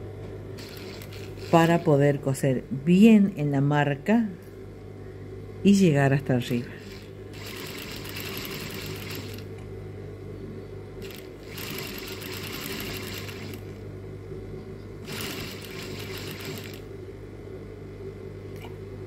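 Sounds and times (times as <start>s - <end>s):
motor hum: 0.0s - 2.2s, 6.4s - 19.0s
sewing machine stitching: 0.6s - 1.9s, 6.8s - 9.5s, 11.0s - 13.6s, 15.0s - 16.8s.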